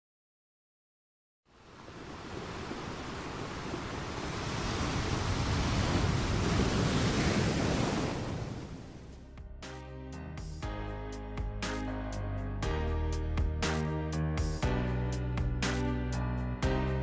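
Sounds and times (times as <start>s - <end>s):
ocean surf rushing: 1.5s - 9.2s.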